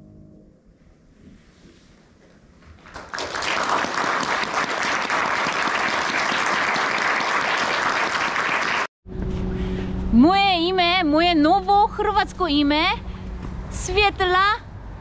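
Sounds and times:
audience applauding: 2.8s - 8.9s.

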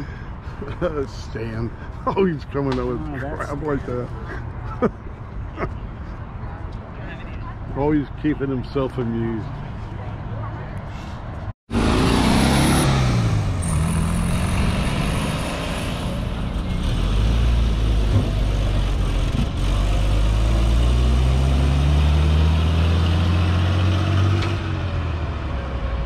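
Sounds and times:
car engine pulling away: 11.7s - 26.0s.

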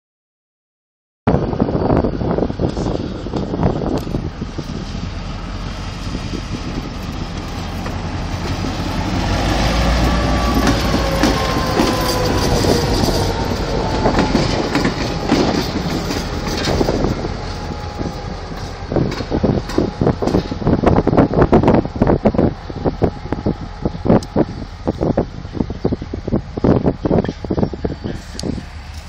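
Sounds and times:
diesel locomotive engine rumble: 1.3s - 29.0s
wheels clacking over rail joints: 4.0s - 25.9s.

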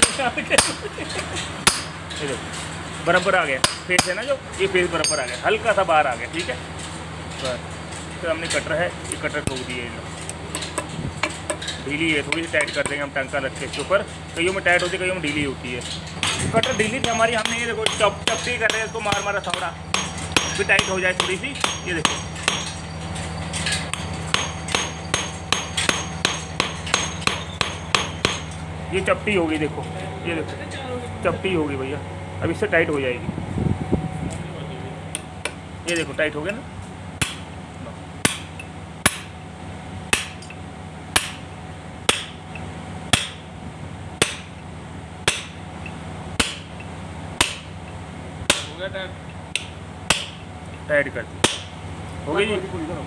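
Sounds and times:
hammer striking steel: 0.0s - 0.9s, 1.6s - 2.0s, 3.6s - 4.3s, 5.0s - 5.4s, 16.2s - 22.9s, 23.7s - 28.6s, 37.2s - 37.5s, 38.2s - 39.4s, 40.1s - 41.5s, 42.1s - 42.4s, 43.1s - 43.5s, 44.2s - 44.5s, 45.2s - 45.6s, 46.4s - 46.8s, 47.4s - 47.7s, 48.5s - 48.8s, 49.5s - 50.4s, 51.4s - 51.8s
steady low hum: 0.0s - 53.0s.

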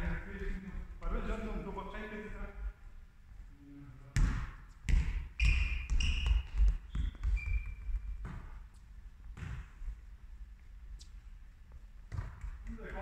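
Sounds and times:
volleyballs bouncing on floor: 4.2s - 10.0s, 11.7s - 13.0s
short squeaks: 5.4s - 8.2s.

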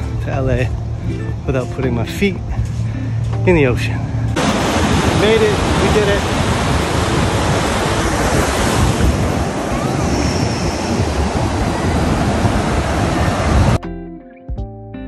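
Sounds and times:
wind buffeting microphone: 0.6s - 13.8s
ocean surf washing over sand: 4.3s - 13.8s.

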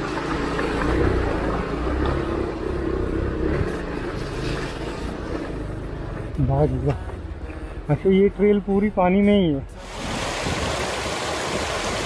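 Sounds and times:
water rushing: 9.8s - 12.0s.

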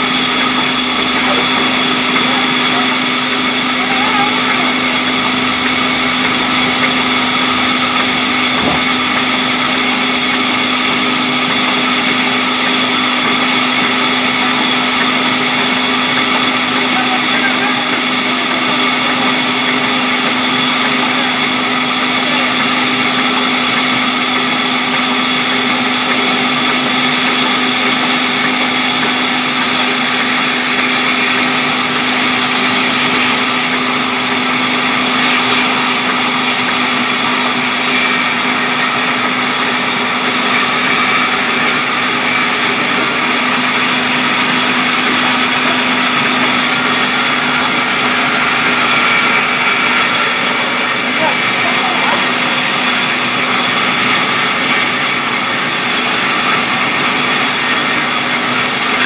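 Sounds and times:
band saw cutting wood: 0.0s - 59.0s.

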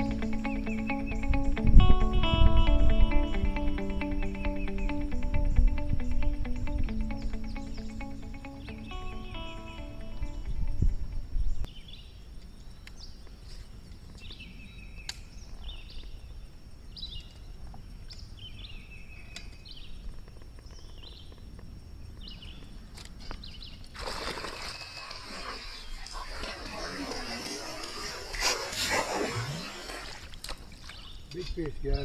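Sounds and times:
bird chirping: 0.0s - 32.0s
fish splashing at surface: 24.0s - 31.1s.

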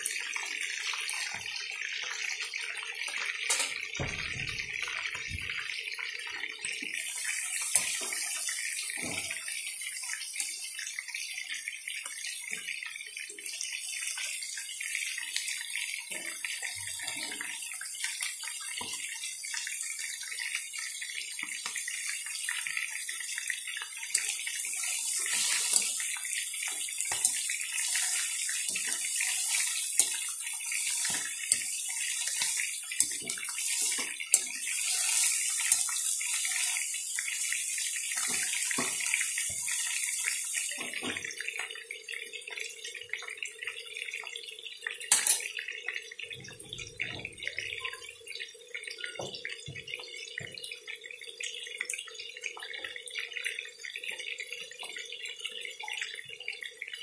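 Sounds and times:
food sizzling in a pan: 6.7s - 41.8s, 45.1s - 45.6s.

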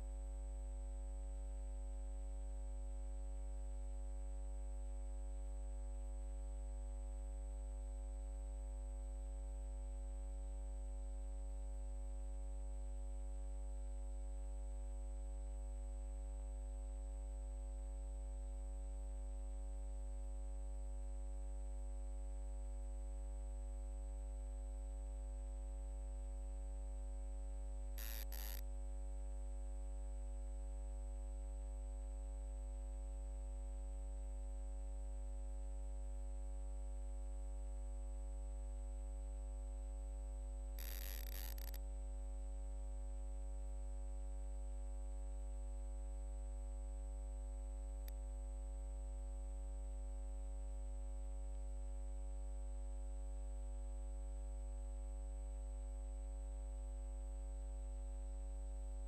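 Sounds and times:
electrical mains hum: 27.9s - 28.6s, 40.8s - 41.8s
short clicks: 28.0s - 28.6s
thin high whine: 28.0s - 28.6s, 40.8s - 41.8s.

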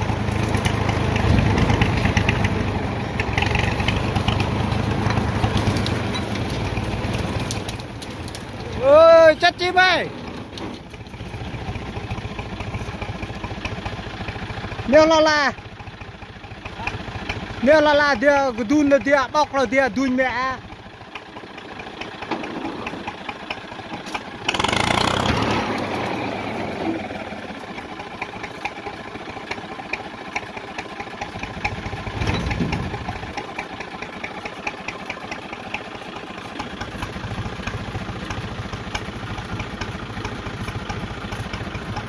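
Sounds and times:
truck engine ticking: 0.0s - 42.0s
engine rushing surge: 24.4s - 27.5s.

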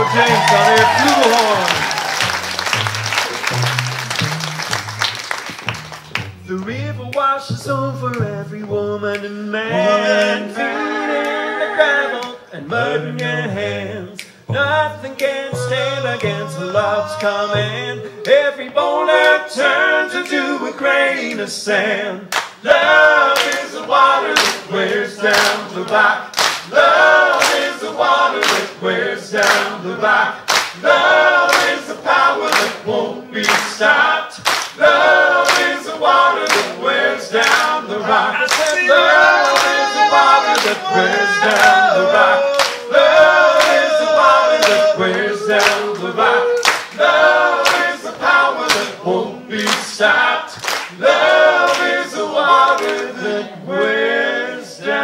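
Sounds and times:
hand claps on the beat: 0.0s - 9.4s, 14.1s - 16.6s, 17.2s - 19.4s, 20.2s - 20.5s, 22.3s - 28.8s, 29.4s - 29.8s, 30.5s - 32.8s, 33.4s - 36.8s, 37.4s - 37.9s, 38.5s - 39.9s, 40.5s - 41.9s, 42.6s - 44.0s, 44.6s - 49.0s, 49.6s - 53.2s
men singing a cappella: 6.7s - 55.0s.

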